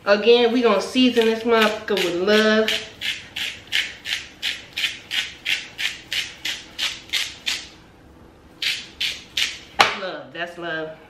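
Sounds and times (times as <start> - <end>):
spice grinder grinding: 1.1 - 7.7.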